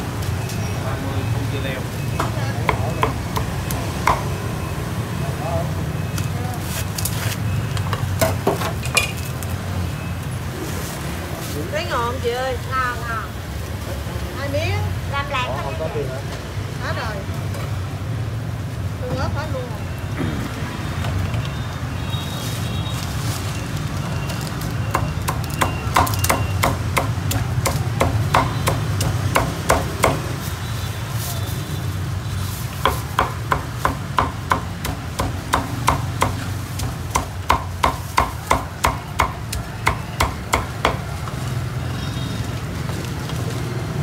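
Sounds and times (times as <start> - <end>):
cleaver chopping on wooden block: 24.9 - 30.3, 32.8 - 41.1.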